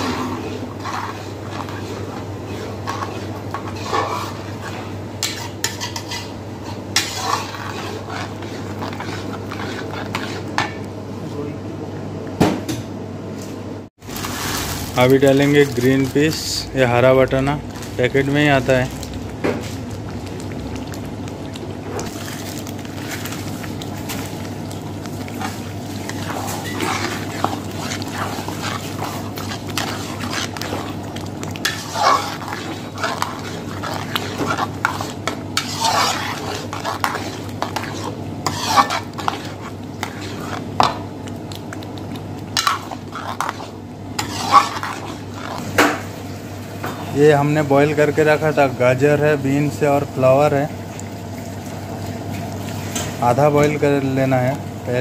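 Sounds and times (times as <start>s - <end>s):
metal ladle scraping metal pan: 0.0s - 10.8s, 25.4s - 41.0s, 42.5s - 46.0s
steady low hum: 22.7s - 47.0s.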